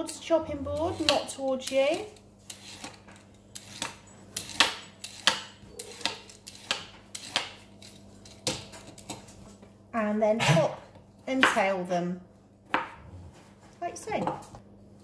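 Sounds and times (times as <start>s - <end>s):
peeler scraping a carrot: 0.5s - 9.2s.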